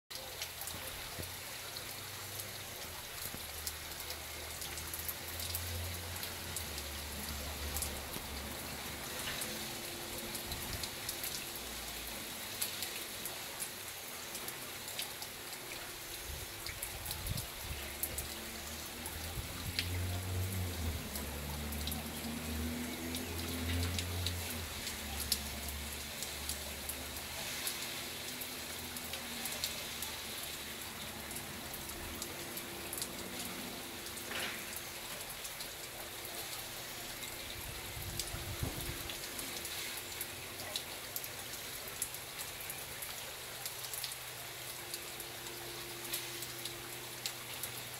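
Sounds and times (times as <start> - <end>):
hose water spray hissing: 15.1 - 35.9, 38.6 - 40.8
water drops pattering: 16.6 - 29.8.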